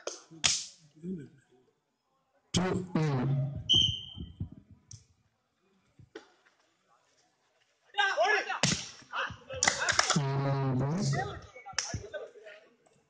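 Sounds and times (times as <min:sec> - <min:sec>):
referee's whistle blast: 0:03.6 - 0:04.3.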